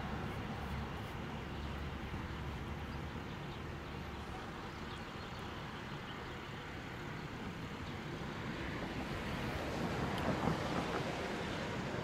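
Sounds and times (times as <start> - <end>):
road traffic hum: 0.0 - 12.0.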